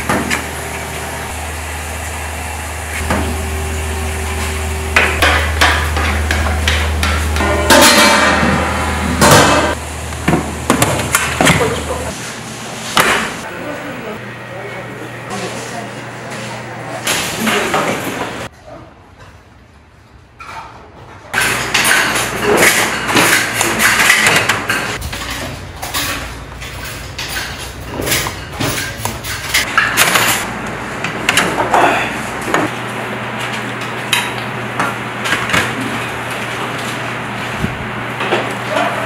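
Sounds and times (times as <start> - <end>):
steady low hum: 0.0 - 18.5.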